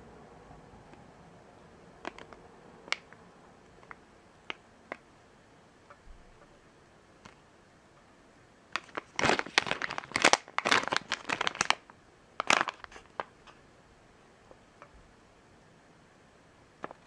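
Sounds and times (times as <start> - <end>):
plastic bag crinkling: 8.8 - 13.6.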